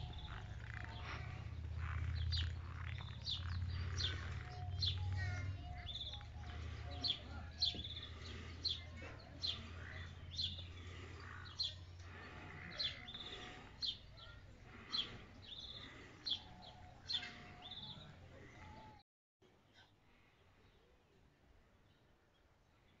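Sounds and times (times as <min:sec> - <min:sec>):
small bird chirping: 0:00.0 - 0:18.1.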